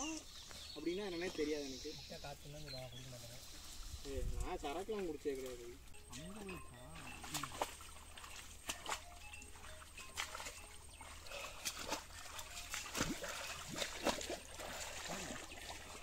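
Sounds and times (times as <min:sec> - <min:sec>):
pond water splashing and trickling: 0:00.0 - 0:16.0.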